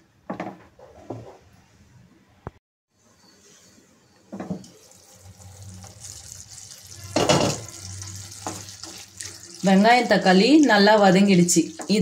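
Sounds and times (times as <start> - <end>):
food sizzling in a pan: 4.6 - 12.0.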